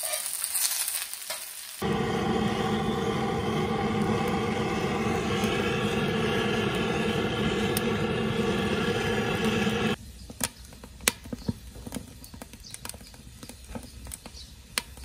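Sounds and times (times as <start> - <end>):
wood fire crackling and popping: 0.0 - 15.0
hand torch rushing: 1.8 - 10.0.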